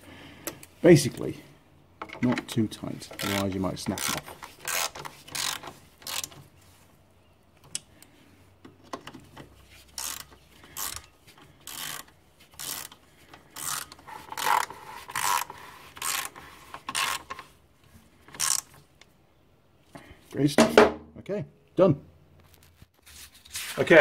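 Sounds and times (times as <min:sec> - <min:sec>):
socket ratchet clicking: 0:09.9 - 0:17.4.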